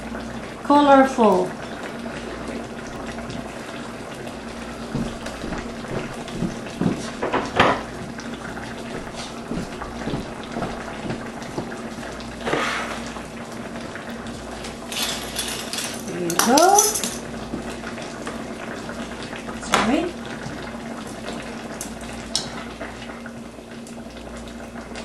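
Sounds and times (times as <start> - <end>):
sauce bubbling in a wok: 10.2 - 14.9, 17.3 - 25.0.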